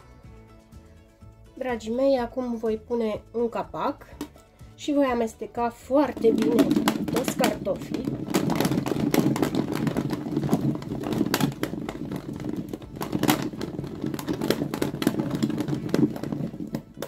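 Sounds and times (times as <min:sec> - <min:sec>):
potato chunks clattering in bowl: 0:06.0 - 0:17.0.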